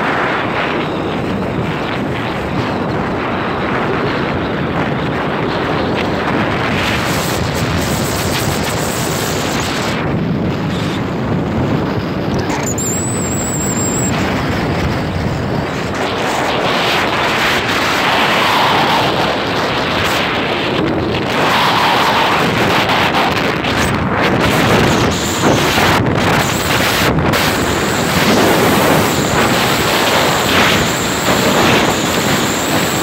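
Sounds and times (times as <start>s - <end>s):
road and vehicle noise: 0.0s - 33.0s
wind rushing over microphone: 0.0s - 33.0s.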